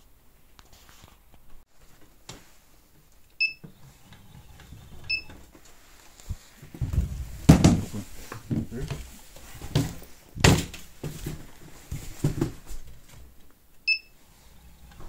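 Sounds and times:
short electronic beeps: 3.4s - 3.6s, 13.9s - 14.1s
handling knocks and clunks: 6.3s - 13.4s.

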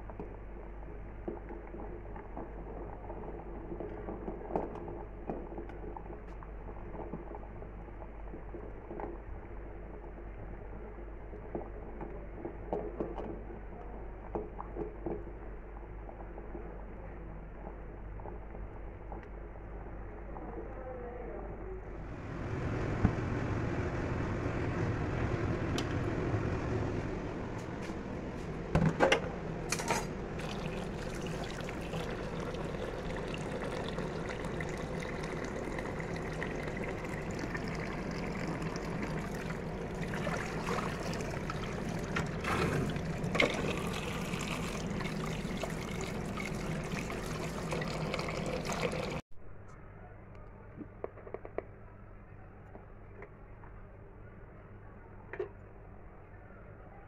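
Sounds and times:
eggs boiling in pot: 0.0s - 20.7s, 30.4s - 49.2s
tap water running into pot: 30.4s - 49.2s.

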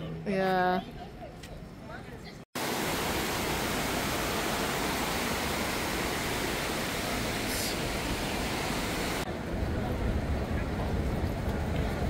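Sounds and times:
river rushing over stones: 2.6s - 9.3s.

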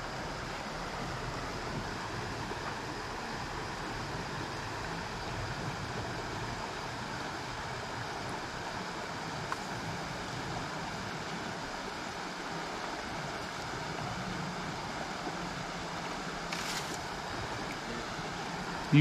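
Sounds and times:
creek water rushing: 0.0s - 19.0s
brief rustle: 16.5s - 17.0s.

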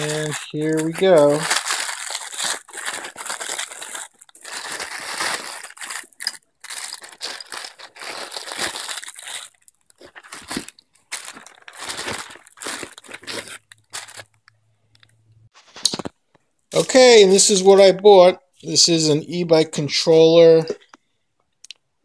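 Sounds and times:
plastic bags crinkling: 0.0s - 14.5s.

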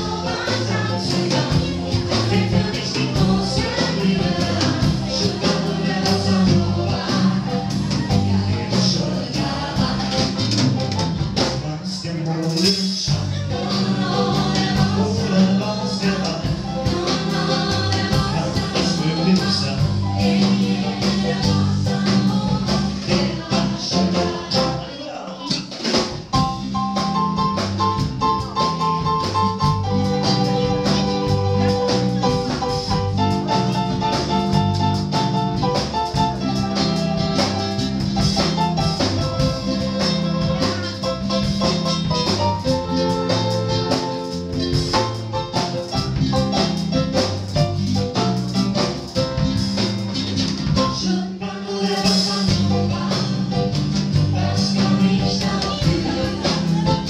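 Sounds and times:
live band playing: 0.0s - 57.0s
person singing: 50.9s - 57.0s.

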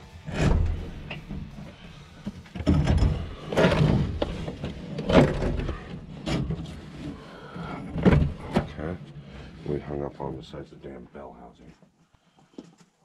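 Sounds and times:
heavy metal clunks and scrapes: 0.2s - 9.4s.

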